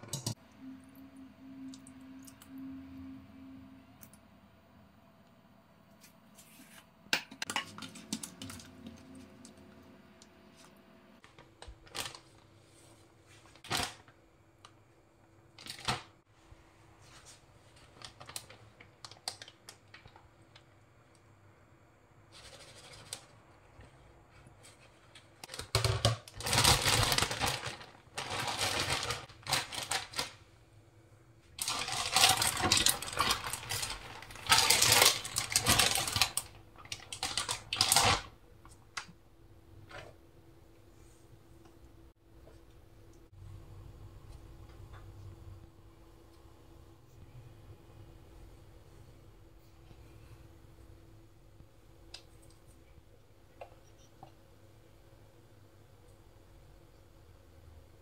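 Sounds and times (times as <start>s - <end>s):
plastic bag crinkling: 11.2s - 12.4s, 25.4s - 30.4s, 31.6s - 38.3s.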